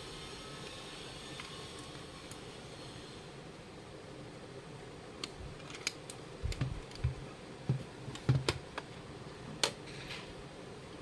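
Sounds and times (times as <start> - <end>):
plastic cases knocking on wood table: 7.0 - 8.6.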